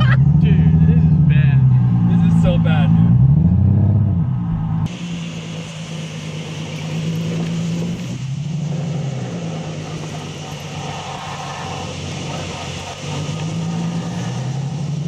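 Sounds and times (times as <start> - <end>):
car engine running: 0.0 - 15.0
road and wind noise hiss: 4.9 - 15.0.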